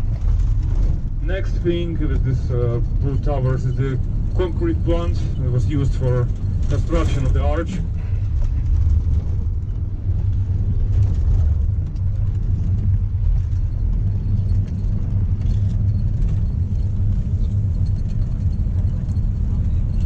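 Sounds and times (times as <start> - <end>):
vehicle engine and road rumble: 0.0 - 20.0.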